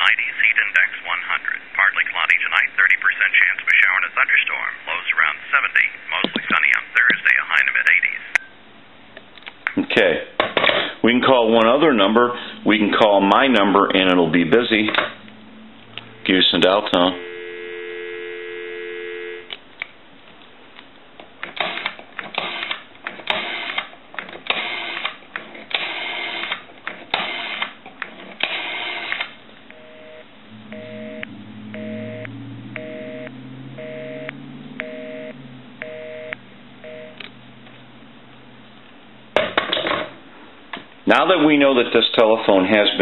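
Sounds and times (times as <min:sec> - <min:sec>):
low hum: 0:15.1 - 0:19.5, 0:29.4 - 0:39.4
two-tone busy signal beeps: 0:17.2 - 0:19.5, 0:29.7 - 0:37.2.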